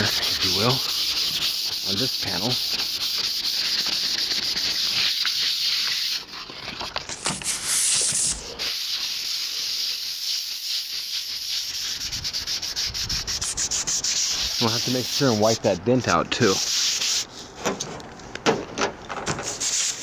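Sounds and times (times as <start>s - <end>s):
sandpaper rubbing on metal: 0.0s - 17.3s, 19.4s - 20.0s
steady hiss: 7.1s - 15.8s.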